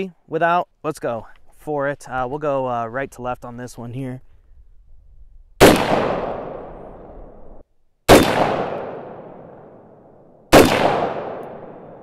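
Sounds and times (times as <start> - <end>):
gunshots with long echo: 5.6 - 12.0.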